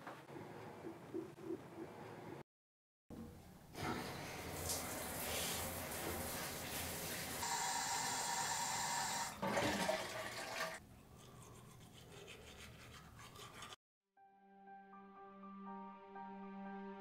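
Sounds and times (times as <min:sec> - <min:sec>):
toilet flushing: 0:03.7 - 0:10.8
shower water running: 0:03.8 - 0:10.8
toothbrush scrubbing teeth: 0:11.0 - 0:13.8.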